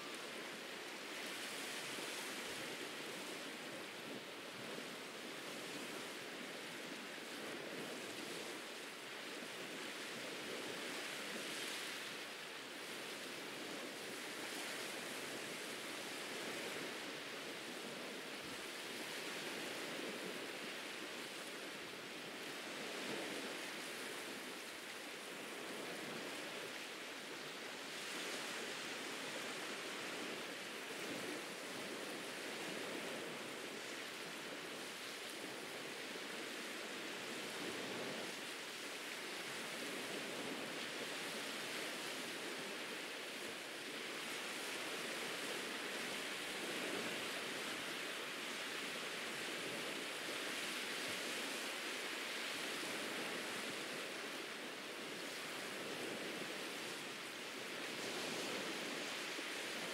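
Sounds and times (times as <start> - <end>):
waves breaking on a beach: 0.0 - 59.9.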